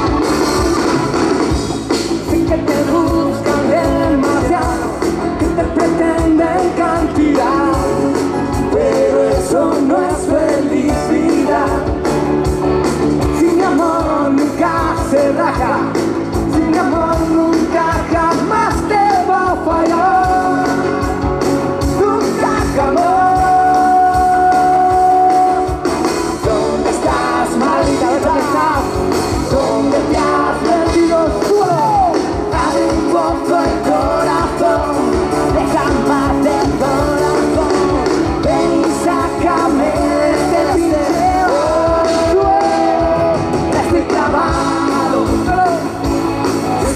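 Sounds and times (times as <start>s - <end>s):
live pop-rock band playing: 0.0s - 46.9s.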